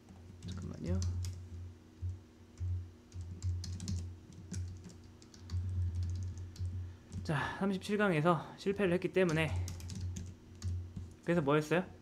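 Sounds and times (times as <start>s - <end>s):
keyboard keys clicking: 2.6s - 7.2s, 9.2s - 11.2s.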